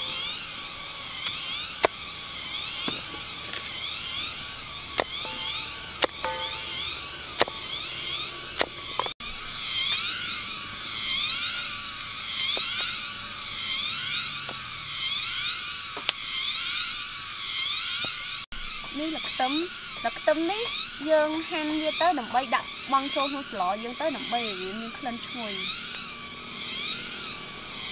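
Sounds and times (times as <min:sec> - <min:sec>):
insect chorus buzzing: 0:00.0 - 0:27.9
knife tapping wooden stump: 0:05.0 - 0:06.8.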